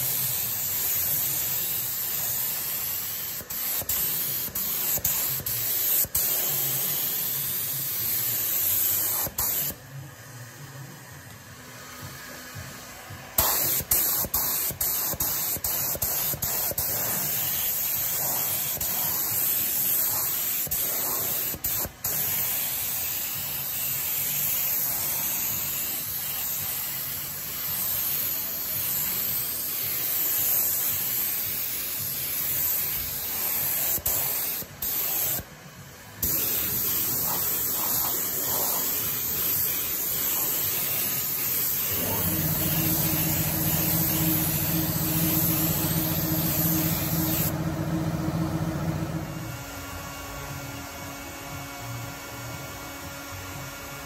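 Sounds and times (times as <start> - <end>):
spray gun hissing: 36.2 - 49.6
low motor hum: 41.9 - 49.9.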